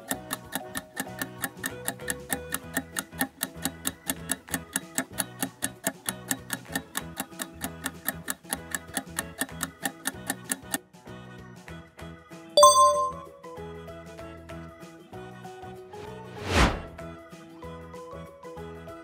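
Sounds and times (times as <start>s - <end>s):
rapid clock-like ticks: 0.0s - 10.8s
light background music: 0.0s - 11.0s, 12.6s - 14.0s.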